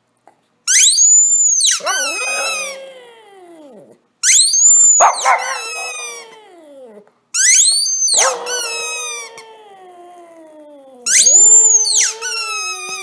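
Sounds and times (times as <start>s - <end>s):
squeaky toy squeaking: 0.7s - 2.8s, 4.2s - 6.4s, 7.4s - 9.5s, 11.1s - 13.0s
dog howling: 1.7s - 4.0s, 4.6s - 7.1s, 7.9s - 13.0s.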